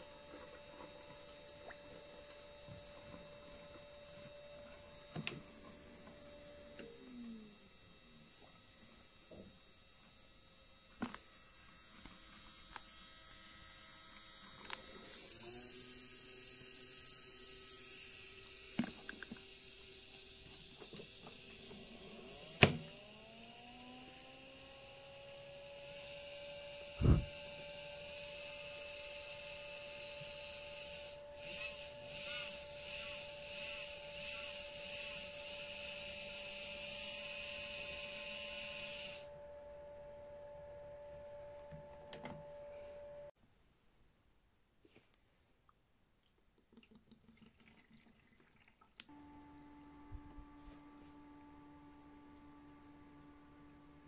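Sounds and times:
washing machine motor whine: 0.0 - 43.4, 49.1 - 54.0.

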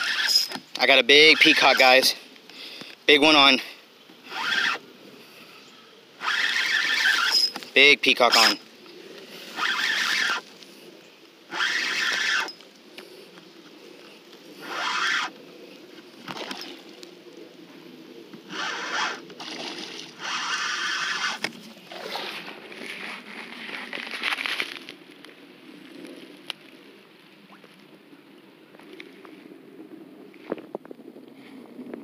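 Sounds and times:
fishing reel whirring: 0.0 - 2.1, 4.2 - 4.8, 6.2 - 7.7, 9.4 - 10.5, 11.5 - 12.6, 14.6 - 15.4, 18.4 - 21.5.

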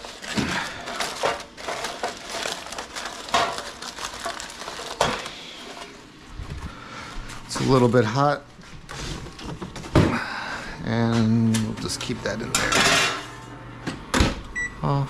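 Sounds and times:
aluminium foil crinkling: 0.0 - 8.1.

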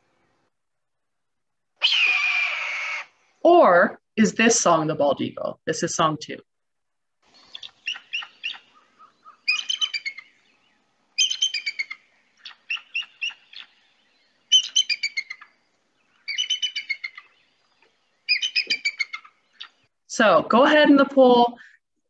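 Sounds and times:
eagle chittering calls: 7.3 - 19.9.

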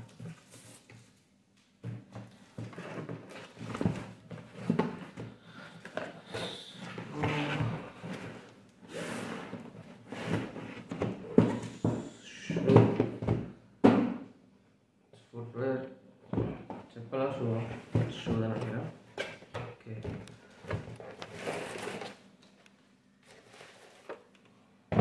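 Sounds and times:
box thumps: 10.8 - 14.2
cardboard scraping and rustling: 20.5 - 22.2, 23.2 - 24.2.

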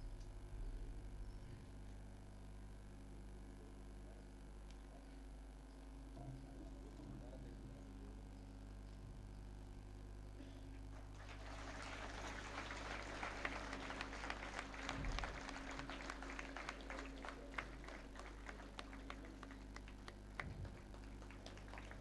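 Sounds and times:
low electrical hum: 0.0 - 22.0
audience applauding: 10.9 - 22.0.

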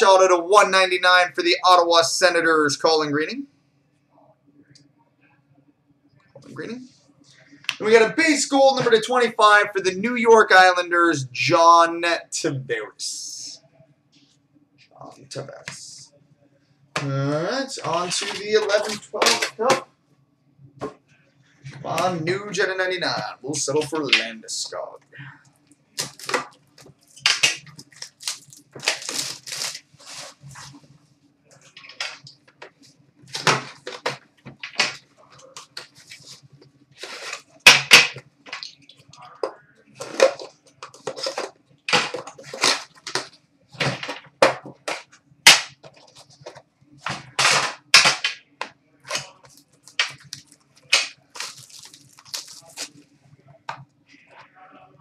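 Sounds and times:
wrapping cracking and ripping: 26.0 - 30.8, 40.0 - 44.2, 49.0 - 53.0.

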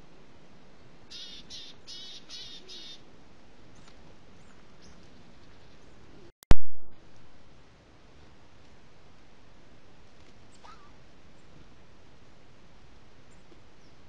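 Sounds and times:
bird giving harsh calls: 1.1 - 3.0.

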